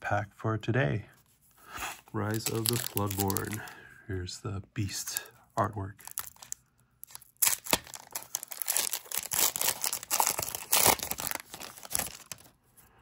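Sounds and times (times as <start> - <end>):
wrapper tearing and crinkling: 2.2 - 3.7, 6.0 - 12.6.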